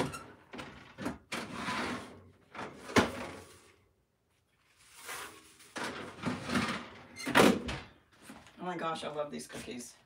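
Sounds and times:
rustling scraping noise: 1.4 - 3.9, 4.5 - 7.0.

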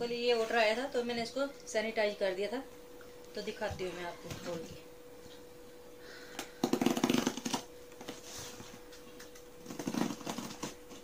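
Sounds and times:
knife slicing packing tape: 9.7 - 11.0.

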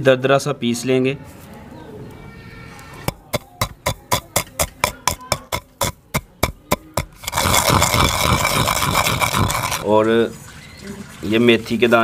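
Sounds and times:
pestle pounding in stone mortar: 3.1 - 9.8.

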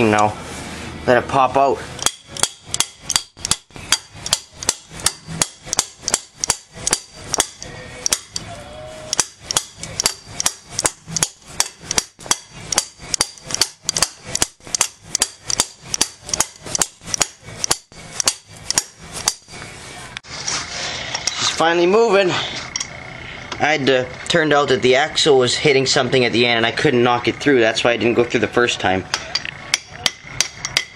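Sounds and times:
hammer striking metal shaft: 2.0 - 8.5, 9.1 - 19.6, 29.1 - 30.9.

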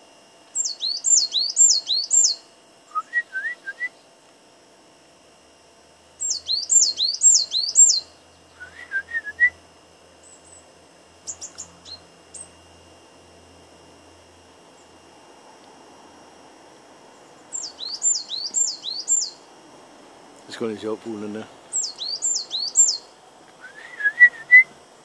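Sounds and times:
songbird singing: 0.5 - 4.2, 6.2 - 12.8, 14.7 - 15.2, 17.0 - 19.7, 20.4 - 24.8.

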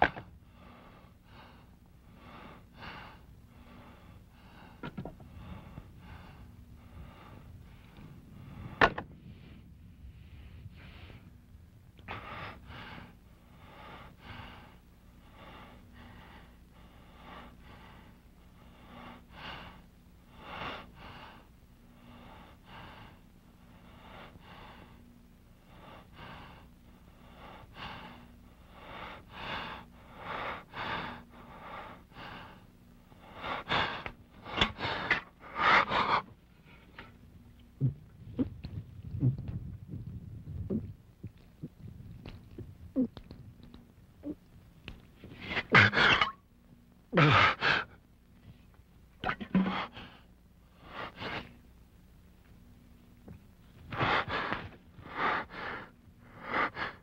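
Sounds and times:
man breathing hard: 0.0 - 37.2, 47.2 - 48.0, 49.5 - 51.6, 53.9 - 57.0.

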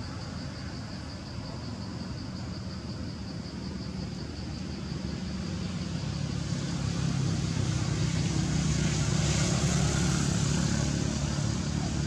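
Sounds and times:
vehicle engine humming: 4.8 - 12.0.

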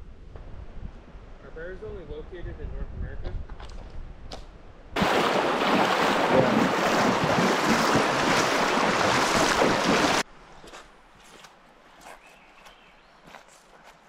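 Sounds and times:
creek water rushing: 5.0 - 10.2.

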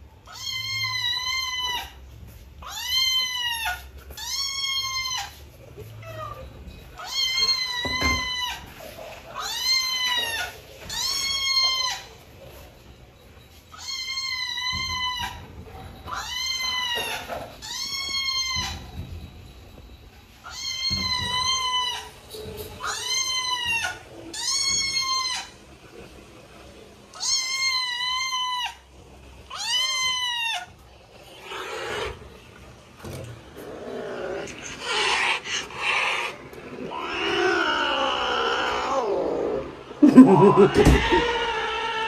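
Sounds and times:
cat meowing: 40.2 - 42.0.

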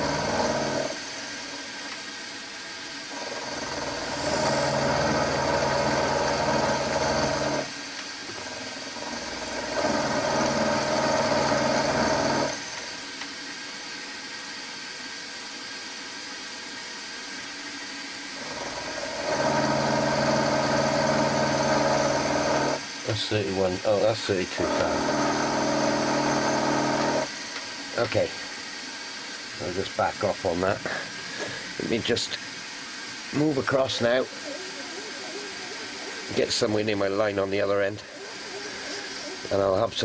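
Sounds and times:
milling machine cutting metal: 0.0 - 1.8, 3.0 - 13.2, 18.3 - 28.3.

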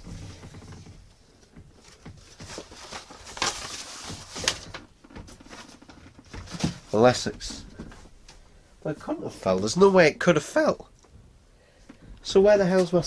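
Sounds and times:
paper packet rustling: 1.8 - 7.3.

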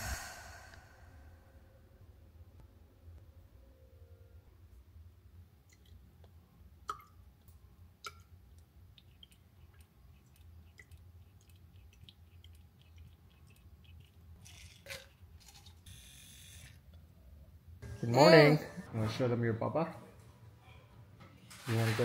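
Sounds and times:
short hisses: 0.0 - 1.4.

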